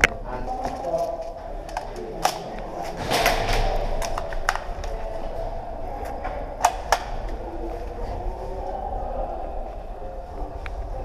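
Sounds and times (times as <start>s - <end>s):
steady background noise: 0.0s - 11.0s
sharp cracks: 1.6s - 5.1s, 6.6s - 7.4s.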